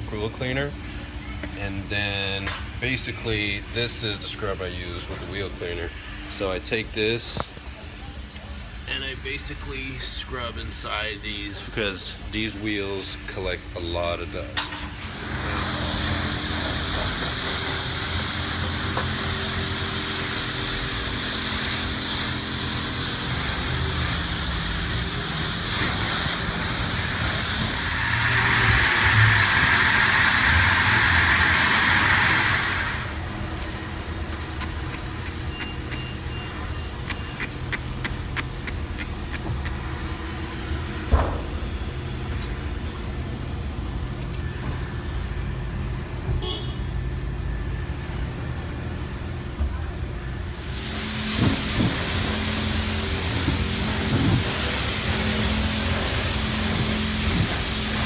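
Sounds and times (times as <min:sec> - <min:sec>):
water spray hissing on car: 0:15.0 - 0:39.9, 0:50.4 - 0:58.0.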